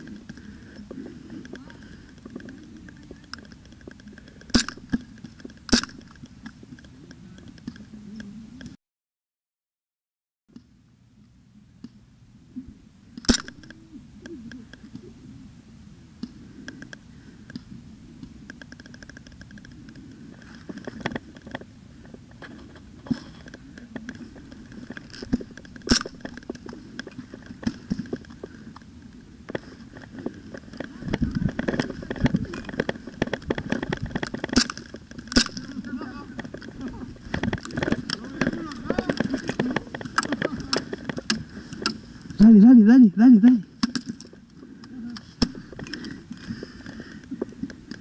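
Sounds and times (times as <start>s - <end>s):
thumps of footsteps: 29.5s - 42.4s.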